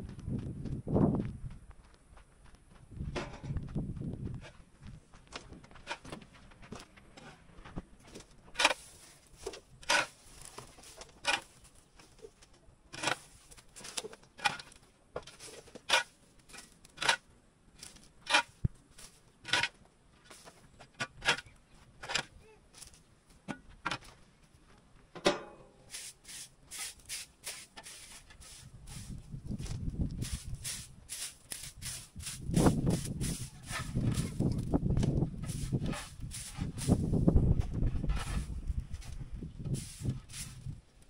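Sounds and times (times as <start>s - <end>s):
shovel scraping yard floor: 5.7s - 6.3s, 7.1s - 17.2s, 17.8s - 23.0s, 25.8s - 41.0s
hand broom sweeping: 8.6s - 11.7s, 15.3s - 16.2s, 25.8s - 34.5s, 35.4s - 37.3s, 38.2s - 38.6s, 39.7s - 40.8s.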